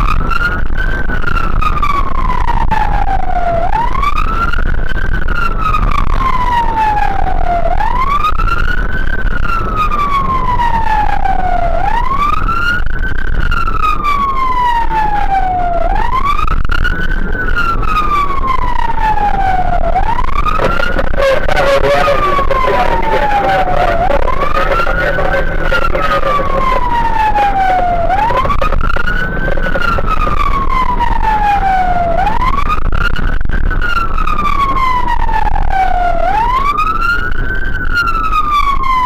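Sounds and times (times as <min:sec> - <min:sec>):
fire engine siren wailing: 0:00.0 - 0:39.0
road rumble: 0:00.0 - 0:39.0
truck engine: 0:16.3 - 0:37.8.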